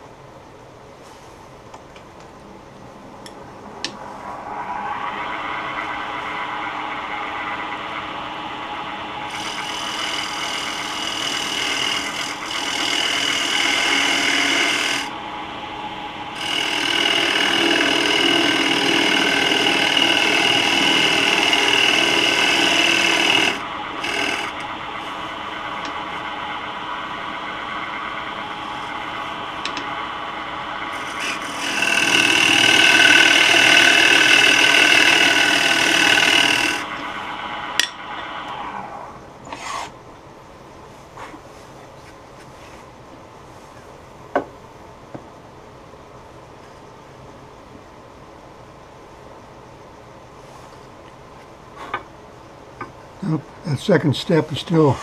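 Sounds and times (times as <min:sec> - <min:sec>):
lathe tool scraping wood: 0:04.4 - 0:37.6.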